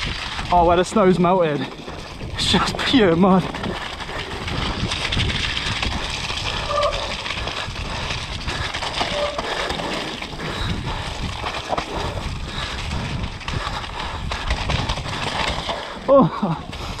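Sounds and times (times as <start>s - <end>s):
bike knocking and rattling: 0.0s - 17.0s
bike tyres through mud and snow: 0.0s - 17.0s.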